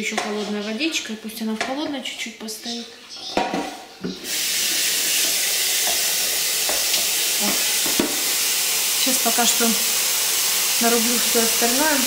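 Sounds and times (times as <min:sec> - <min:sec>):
water pouring from tap into pot: 0:04.3 - 0:12.0.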